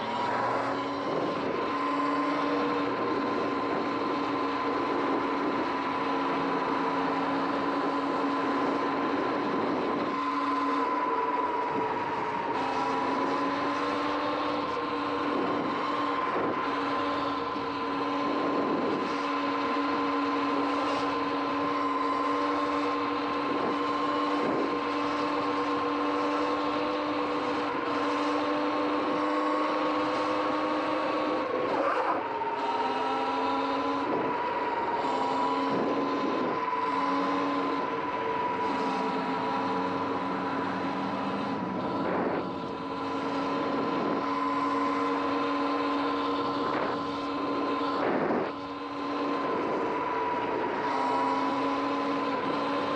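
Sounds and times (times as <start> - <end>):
electric motor whine: 0.0 - 52.9.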